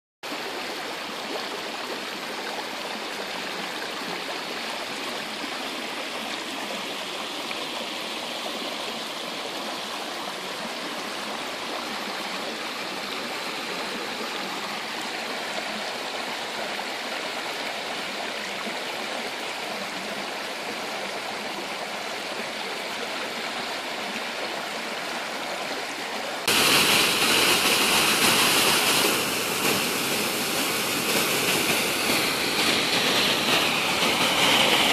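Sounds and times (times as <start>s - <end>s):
creek rushing: 0.3s - 34.9s
water pouring over cascade: 26.4s - 34.9s.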